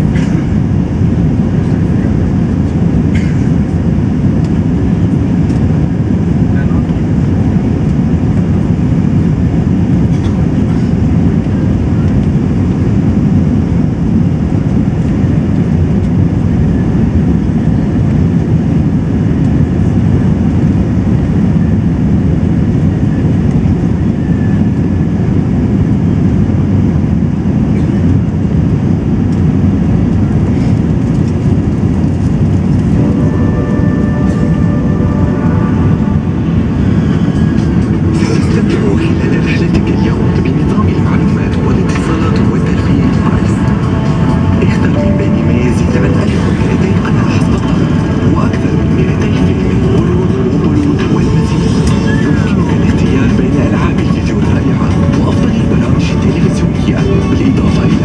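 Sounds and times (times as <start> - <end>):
jet engine rumble in cabin: 0.0 - 58.0
air rushing past fuselage: 30.4 - 52.9.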